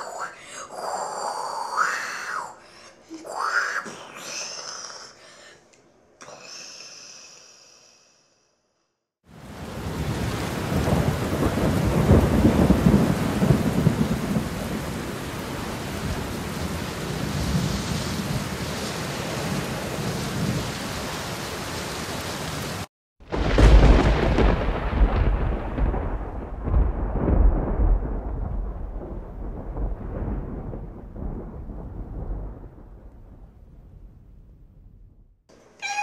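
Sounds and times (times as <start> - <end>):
heavy rain: 9.3 - 33.0
thunder rumbling: 9.4 - 20.6, 23.2 - 35.4
loud deep thunder crash: 9.7 - 14.8, 23.2 - 35.4.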